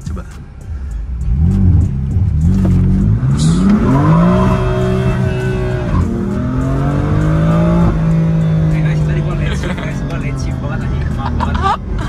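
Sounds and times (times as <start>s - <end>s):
car engine accelerating hard: 1.1s - 12.0s
man talking: 8.6s - 11.8s.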